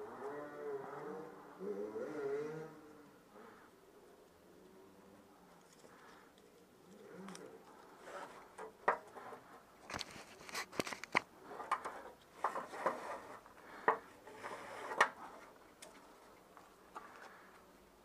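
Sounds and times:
gloves rubbing and rustling: 7.6s - 17.8s.

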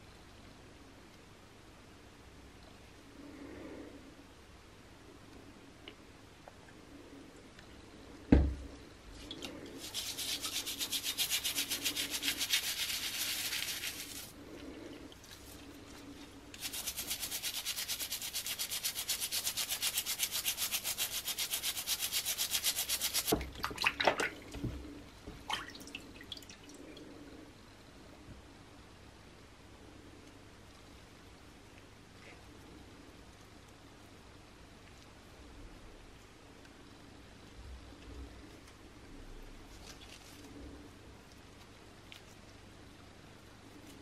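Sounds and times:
brush scrubbing metal: 9.8s - 14.4s, 16.5s - 23.4s.

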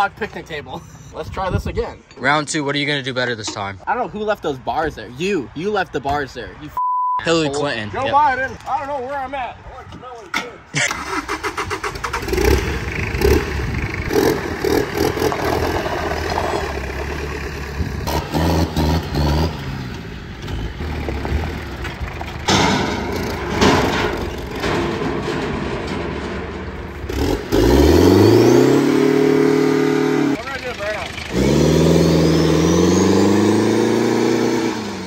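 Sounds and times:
diesel engine revving: 10.8s - 25.4s, 26.8s - 35.0s.

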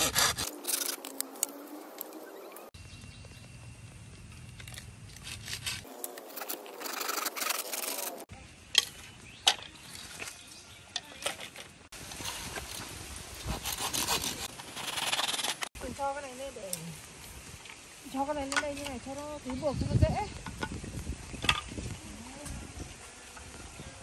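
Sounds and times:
wood rasping strokes: 0.0s - 2.0s, 5.1s - 8.3s, 12.2s - 15.7s.

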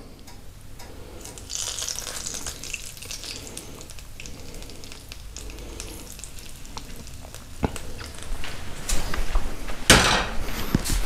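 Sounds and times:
hot oil sizzling on fish: 1.2s - 8.4s.

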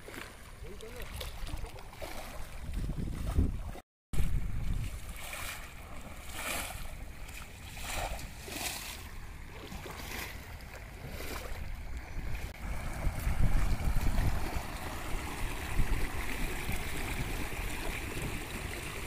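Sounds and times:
feet splashing through water: 0.0s - 19.0s
wind rumble on microphone: 2.4s - 7.4s, 11.0s - 19.0s
rushing floodwater: 4.4s - 19.0s.

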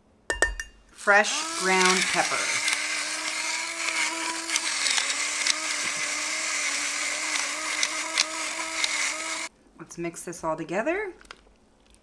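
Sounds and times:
electric pepper grinder whining: 1.1s - 9.5s.

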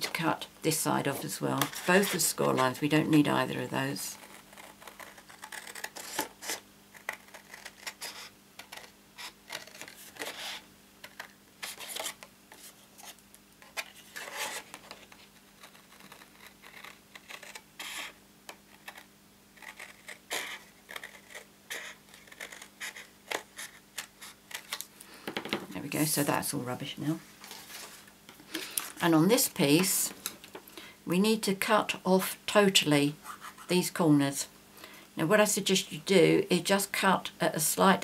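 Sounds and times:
faint steady hum: 0.0s - 38.0s
scissors cutting cardstock: 4.2s - 8.9s.

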